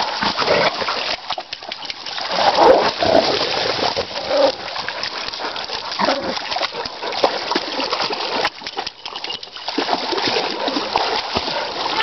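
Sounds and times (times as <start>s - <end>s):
water splashing and sloshing: 0.0s - 12.0s
dog vocal sounds: 4.0s - 7.4s.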